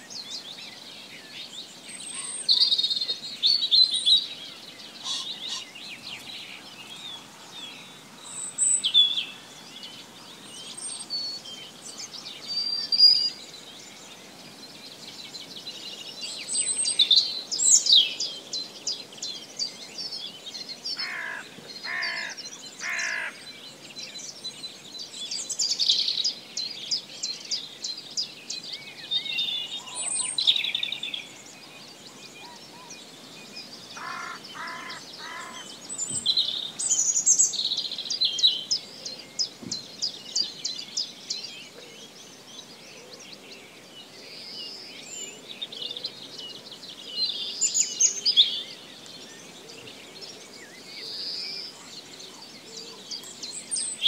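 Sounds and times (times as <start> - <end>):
songbirds chirping and twittering: 0.0 - 54.0
lower bird calls: 2.0 - 14.0, 21.0 - 23.5, 33.9 - 40.9.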